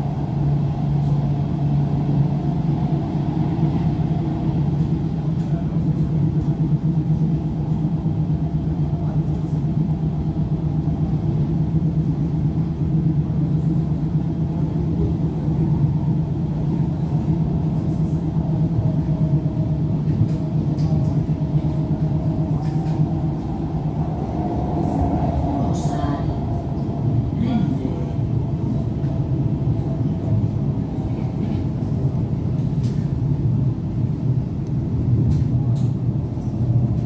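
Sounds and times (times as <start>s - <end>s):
constant low hum: 0.0s - 37.0s
train wheels rumbling on rails: 0.0s - 37.0s.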